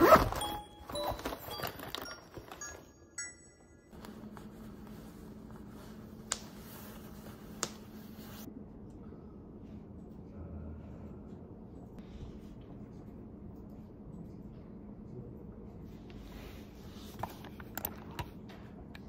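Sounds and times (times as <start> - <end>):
fabric bag rustling: 0.0 - 3.0
low room hum: 0.0 - 19.0.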